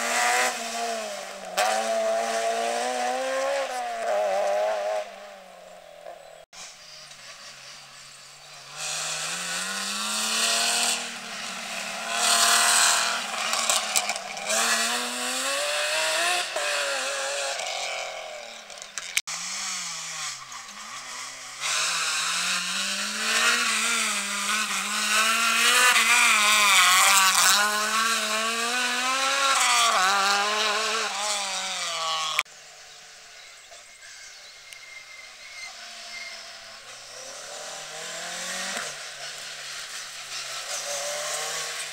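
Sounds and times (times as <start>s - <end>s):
car engine approaching: 0.0s - 19.6s, 35.4s - 41.9s
rally car engines revving: 0.0s - 33.8s, 35.2s - 41.9s.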